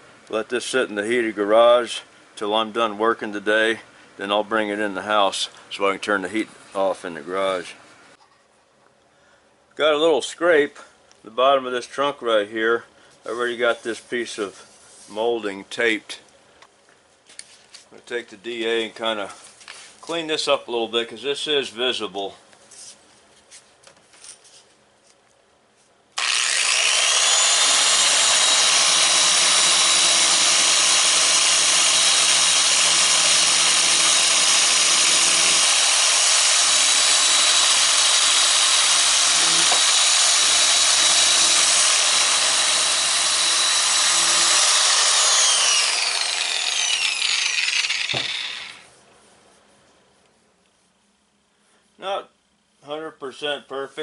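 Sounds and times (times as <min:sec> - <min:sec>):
power sander whining: 0:26.2 - 0:48.9.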